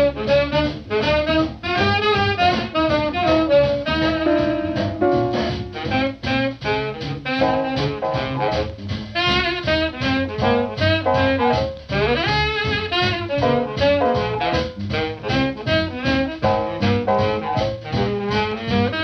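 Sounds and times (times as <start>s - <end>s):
jazz music with horns: 0.0s - 19.0s.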